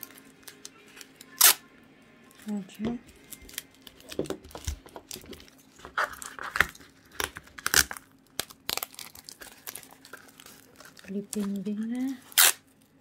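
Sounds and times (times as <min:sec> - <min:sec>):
tape and cardboard crinkling: 0:02.4 - 0:13.0
tape unrolling rasps: 0:03.3 - 0:12.7.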